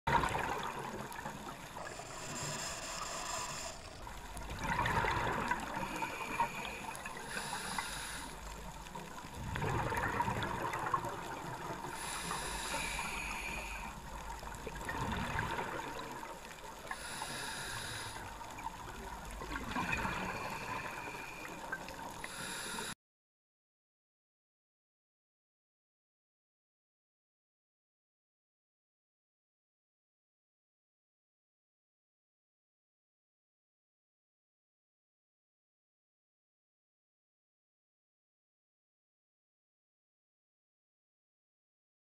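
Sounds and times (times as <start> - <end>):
bubbling exhale: 0.1 - 8.5, 9.5 - 14.0, 16.9 - 18.5, 19.5 - 23.0
regulator hissing inhale: 1.5 - 4.4, 5.7 - 9.0, 11.9 - 14.2, 16.8 - 18.6, 20.1 - 23.0.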